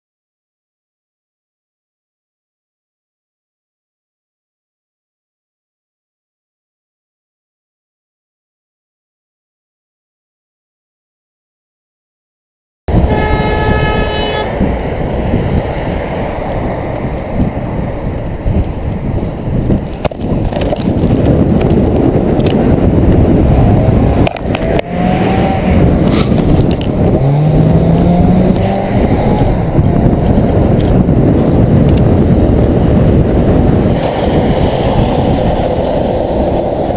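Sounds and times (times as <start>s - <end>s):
road noise: 12.9s - 36.9s
wind buffeting microphone: 12.9s - 36.9s.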